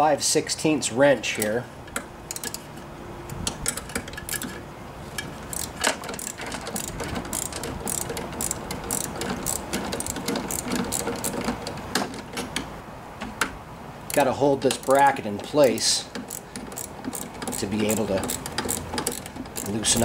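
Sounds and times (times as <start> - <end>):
ratcheting wrench clicking: 1.3 - 2.7, 5.2 - 12.6, 14.1 - 20.0.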